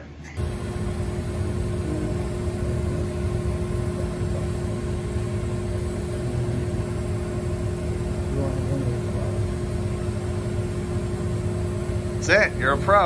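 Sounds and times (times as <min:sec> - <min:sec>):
shop machinery drone: 0:00.0 - 0:13.0.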